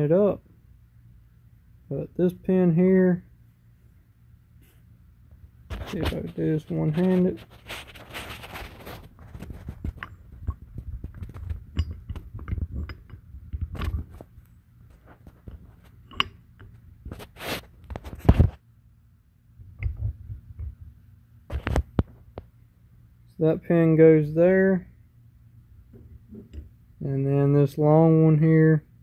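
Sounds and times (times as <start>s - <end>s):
metal parts and tools handled: 5.7s - 18.4s, 19.7s - 20.7s, 25.9s - 26.8s.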